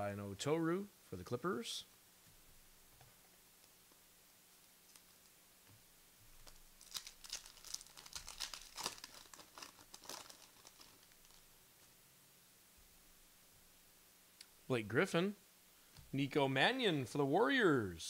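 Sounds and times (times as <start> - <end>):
wrapper crinkling as torn open: 6.4 - 11.6.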